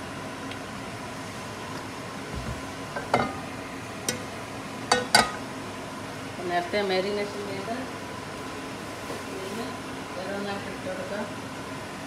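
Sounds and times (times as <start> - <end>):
steady background hiss: 0.0 - 12.0
frying pan knocking on stove grate: 4.9 - 5.4.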